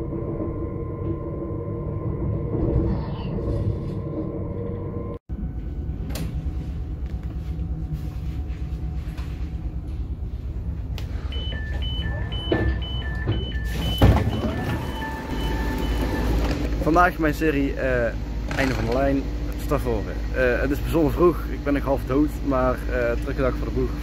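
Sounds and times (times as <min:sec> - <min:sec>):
train rumbling at platform: 0:00.0 - 0:16.9
two-tone door warning beeping: 0:11.2 - 0:16.6.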